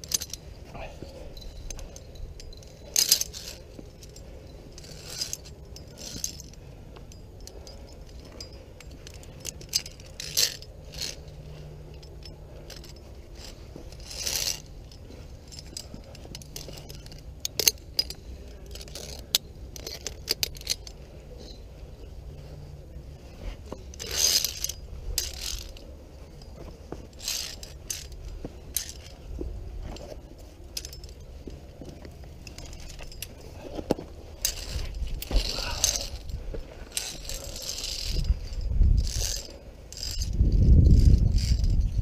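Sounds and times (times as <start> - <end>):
carabiners clinking on steel cable: 0.0 - 42.0.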